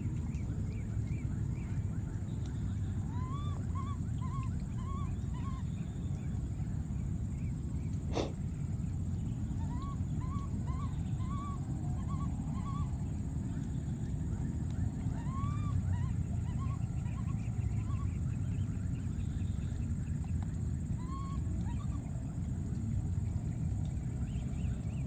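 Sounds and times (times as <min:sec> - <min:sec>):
small animal chirping calls: 0:08.1 - 0:08.4.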